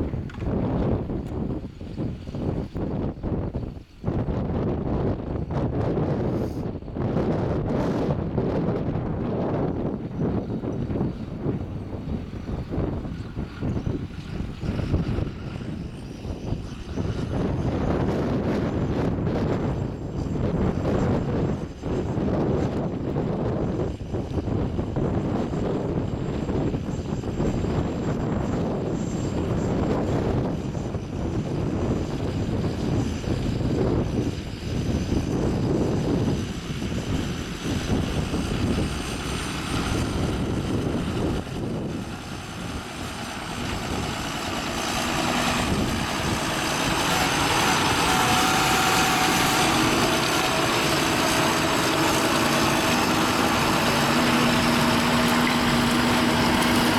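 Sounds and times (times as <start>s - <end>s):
wind rumbling on microphone: 0.0s - 56.9s
tractor diesel engine under load: 24.6s - 56.9s.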